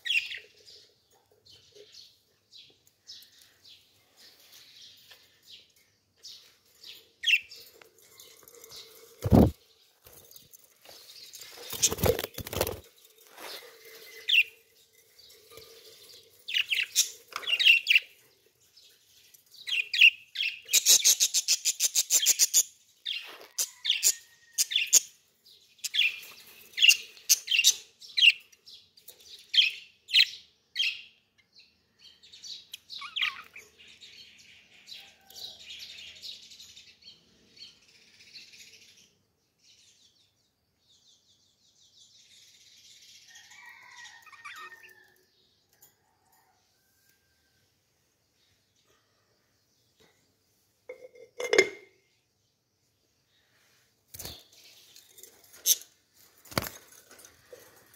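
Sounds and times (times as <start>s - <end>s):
parrots chirping: 33.0s - 33.7s.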